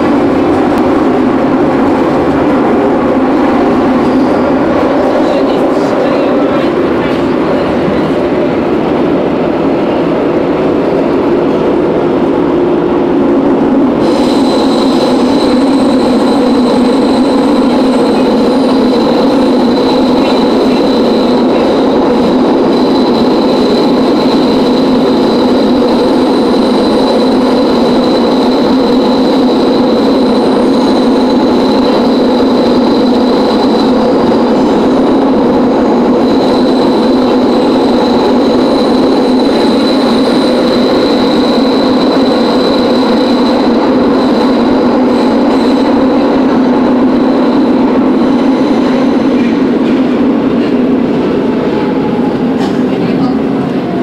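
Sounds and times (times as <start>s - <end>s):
subway train wheels rumbling on rail: 0.0s - 54.0s
high steady whistling tone: 14.0s - 49.8s.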